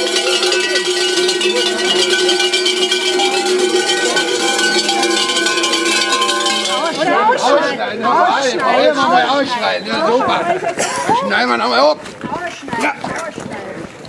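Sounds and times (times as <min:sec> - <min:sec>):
large bells clanging: 0:00.0 - 0:07.7.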